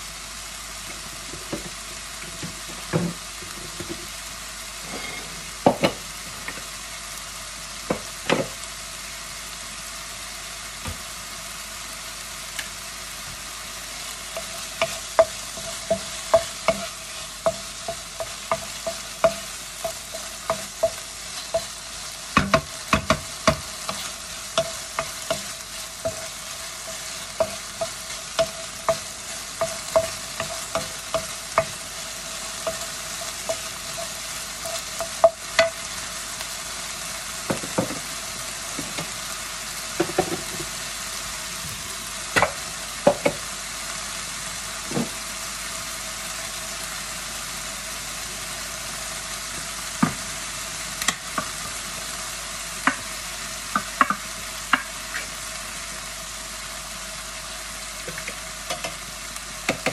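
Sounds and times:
chicken sizzling in pan: 0.0s - 59.9s
wooden spoon knocking pan: 14.4s - 21.8s, 22.4s - 31.8s, 42.4s - 43.4s, 53.7s - 54.9s, 59.7s - 59.9s.

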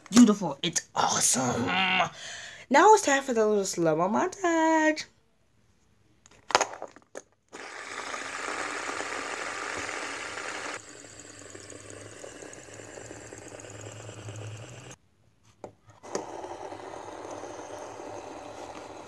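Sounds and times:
fidget spinners whirring: 7.6s - 15.0s, 15.9s - 19.0s
low hum: 10.5s - 15.0s.

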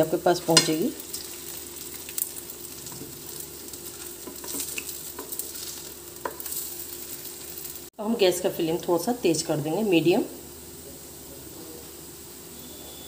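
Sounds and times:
patties sizzling in oil: 0.0s - 13.0s
spatula clicks and scrapes: 3.3s - 6.7s.

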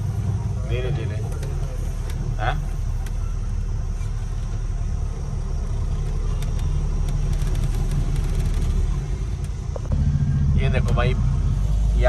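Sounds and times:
diesel truck engine rumble: 0.0s - 12.0s
rapid light clicks: 5.8s - 9.6s.

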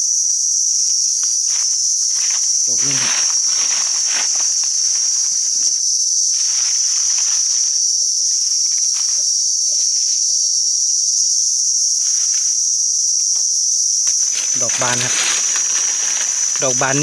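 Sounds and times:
forest insects buzzing: 0.0s - 17.0s
rustling: 1.5s - 10.2s, 13.9s - 17.0s.

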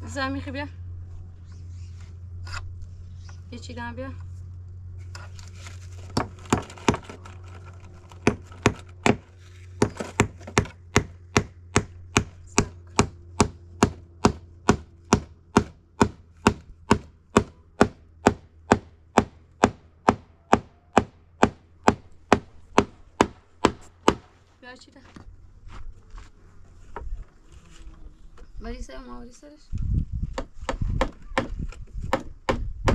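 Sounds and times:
hammer striking nails into wood: 8.2s - 24.3s, 30.3s - 32.9s.

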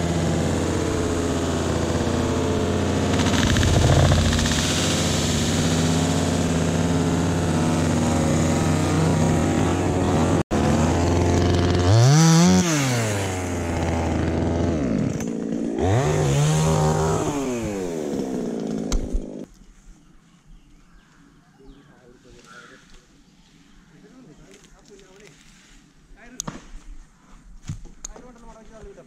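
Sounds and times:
chainsaw idling and revving: 0.0s - 19.5s.

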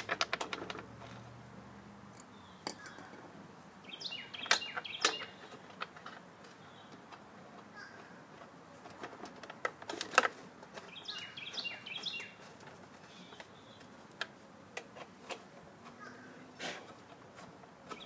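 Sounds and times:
bird chirping: 3.8s - 5.7s, 10.8s - 14.0s.

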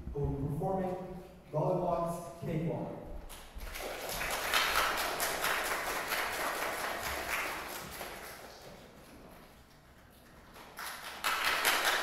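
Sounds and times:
audience applauding: 3.6s - 8.6s, 10.6s - 12.0s.

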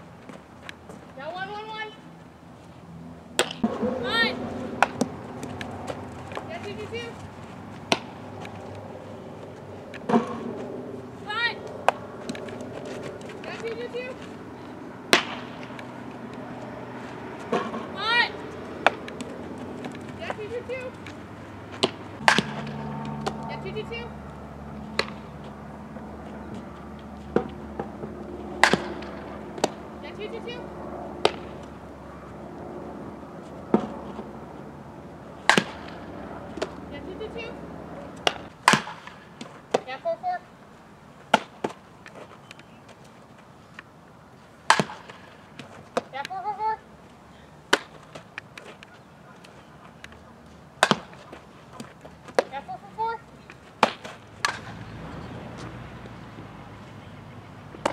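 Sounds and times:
ball off a bat: 3.4s - 7.1s, 7.9s - 8.5s, 9.9s - 10.7s, 15.1s - 15.8s, 17.4s - 23.6s, 25.0s - 25.3s, 27.3s - 29.8s, 31.2s - 31.7s, 35.4s - 36.8s, 38.2s - 39.9s, 44.7s - 46.1s, 50.8s - 52.6s, 53.8s - 54.8s
ball smacking into glove: 15.1s - 15.8s, 21.0s - 23.5s, 31.2s - 31.7s
person calling out: 17.9s - 18.4s.

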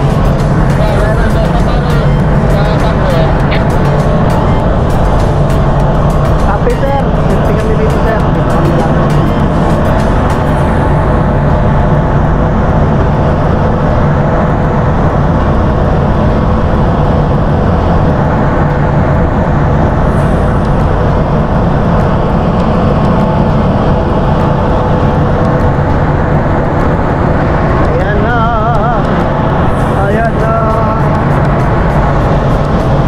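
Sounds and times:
constant machinery hum: 0.0s - 33.0s
ship engine rumbling: 0.0s - 33.0s.

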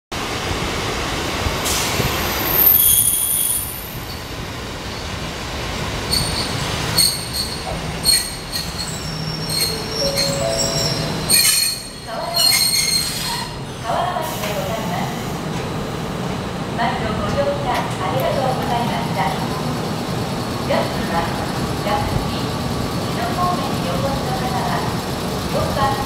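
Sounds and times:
train wheels and brakes squealing: 1.6s - 4.2s, 6.1s - 13.6s.

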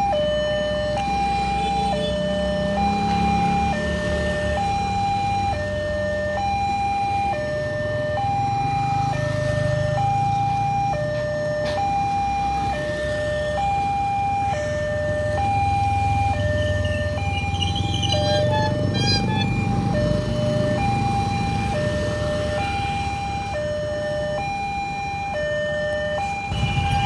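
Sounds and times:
level crossing two-tone alarm: 0.0s - 27.0s
motorcycle engines rumbling: 0.0s - 27.0s.

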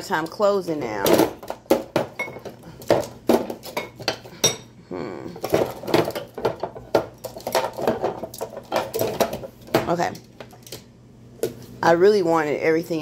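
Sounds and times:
metal items clattering in drawer: 5.4s - 9.5s.

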